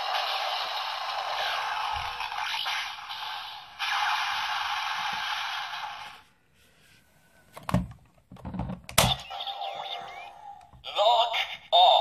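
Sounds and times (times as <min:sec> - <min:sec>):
toy belt electronic hiss: 0:00.0 - 0:06.2.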